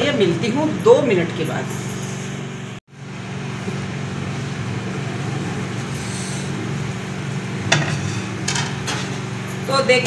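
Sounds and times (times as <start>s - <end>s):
background hum and hiss: 0.0s - 10.0s
plate clanking on frying pan: 7.7s - 9.2s.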